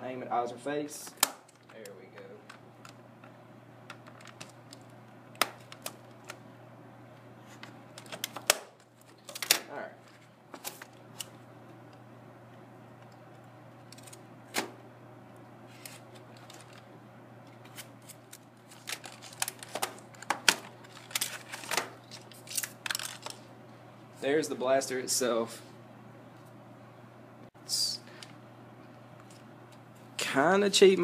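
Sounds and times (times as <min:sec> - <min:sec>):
packaging rustling: 0:15.7 - 0:16.9, 0:17.6 - 0:23.5.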